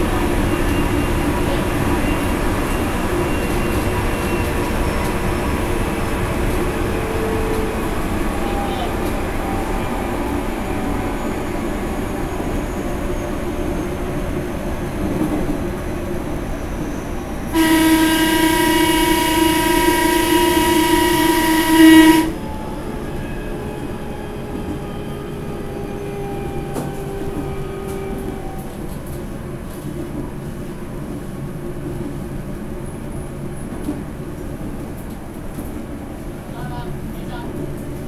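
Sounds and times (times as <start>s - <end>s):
train horn blast: 17.5s - 22.6s.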